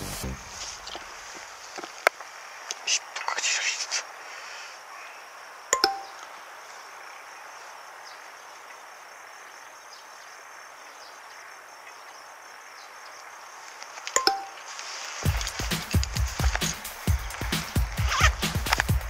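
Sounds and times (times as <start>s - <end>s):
insects chirping faintly: 0.0s - 19.0s
outdoor background hiss: 0.0s - 19.0s
two-note electronic blip: 5.8s - 6.2s, 14.2s - 14.6s.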